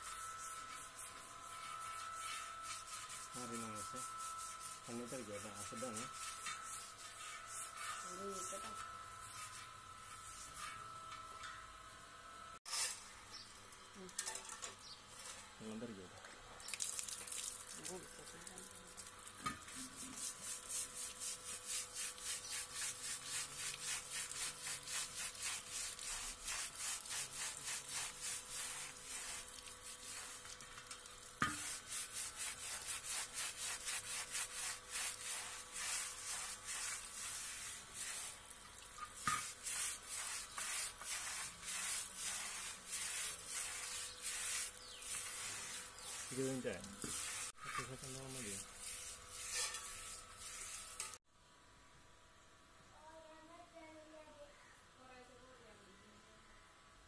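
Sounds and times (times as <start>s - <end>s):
brush scrubbing metal rim: 0.0s - 11.5s, 19.3s - 51.2s
water running: 21.4s - 51.2s.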